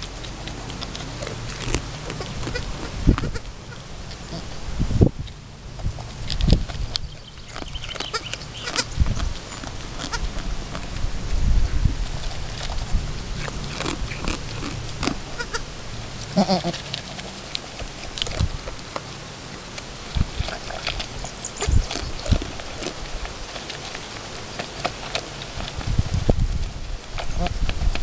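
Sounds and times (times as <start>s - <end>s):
goat feeding from plastic bowl: 0.0s - 28.0s
goat bleating: 2.1s - 4.6s, 8.1s - 8.9s, 15.3s - 16.9s.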